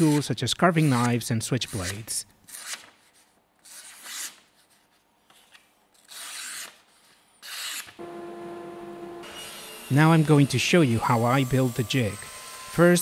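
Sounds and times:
steady hum: 8.0s - 10.0s.

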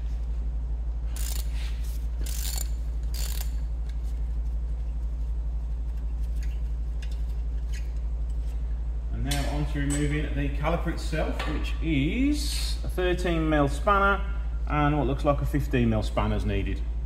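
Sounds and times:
socket ratchet clicking: 1.2s - 1.5s, 2.2s - 3.6s.

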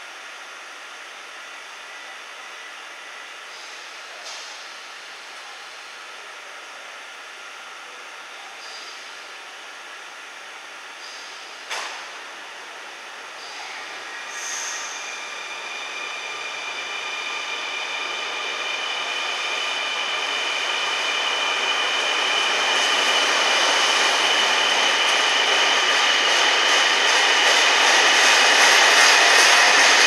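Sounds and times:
electric locomotive hauling train: 0.0s - 30.0s
high steady whining tones: 13.1s - 30.0s.

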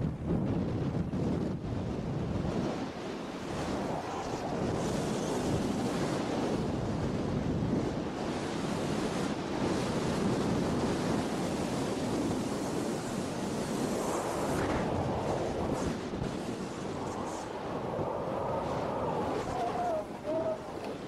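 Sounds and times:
wind rushing over microphone: 0.0s - 21.0s
skis scraping over packed snow: 3.1s - 6.8s, 8.5s - 21.0s.

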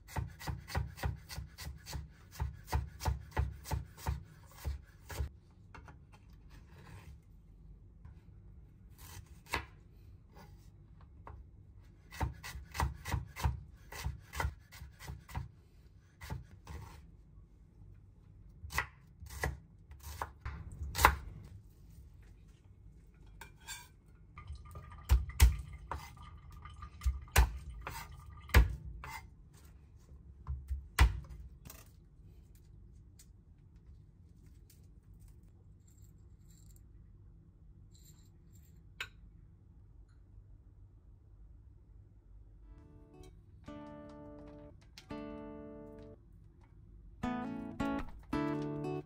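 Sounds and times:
knife chopping on cutting board: 0.0s - 5.3s, 12.1s - 15.5s, 16.2s - 17.0s, 18.7s - 21.3s.

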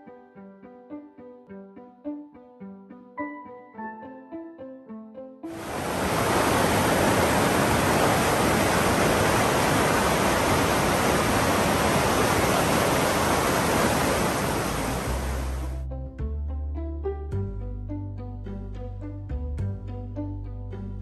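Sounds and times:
piano music: 0.0s - 5.7s
mountain stream rushing over boulders: 5.6s - 15.8s.

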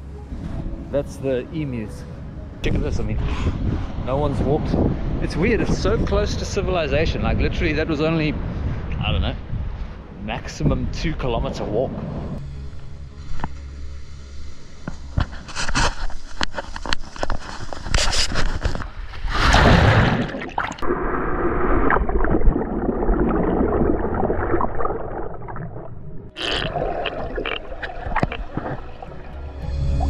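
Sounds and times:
water splashing against camera: 15.8s - 29.4s
wave breaking: 19.2s - 29.4s.

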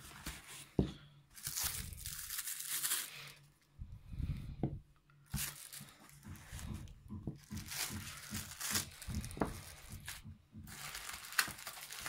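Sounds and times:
plastic bags crinkling: 1.3s - 3.5s, 5.3s - 12.0s
soft bumps: 3.8s - 11.7s.

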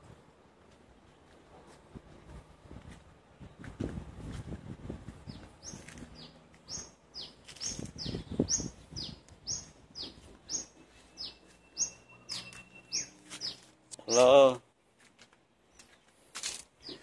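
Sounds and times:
bird chirping: 5.2s - 14.4s, 16.8s - 17.0s.

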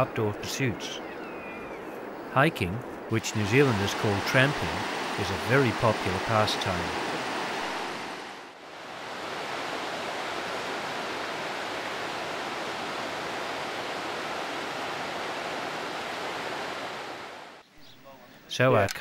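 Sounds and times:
rushing mountain river: 2.5s - 17.6s.

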